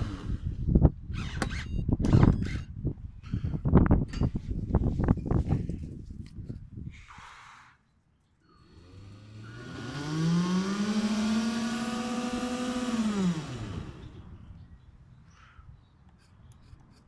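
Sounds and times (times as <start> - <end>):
electric propeller motor whine: 0.0 - 0.6, 8.6 - 14.6.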